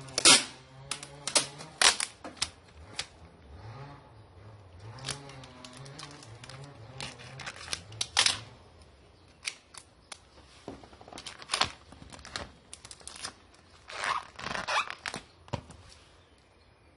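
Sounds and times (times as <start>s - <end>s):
packing material tearing and crinkling: 0.0s - 3.1s, 4.8s - 8.6s, 10.9s - 15.4s.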